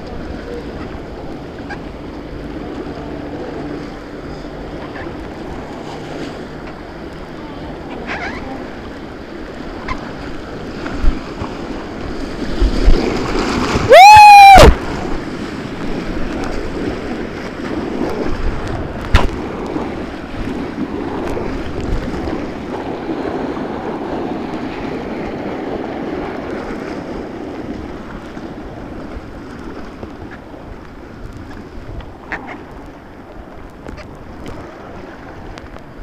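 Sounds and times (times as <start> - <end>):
white-water river rushing: 12.7 - 16.8
loud rising shout: 13.9 - 14.8.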